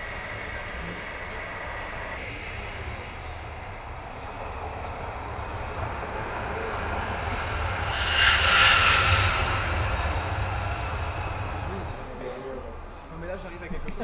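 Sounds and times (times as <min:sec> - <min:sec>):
highway traffic rumble: 0:00.0 - 0:14.0
vehicle rushing past: 0:05.0 - 0:13.0.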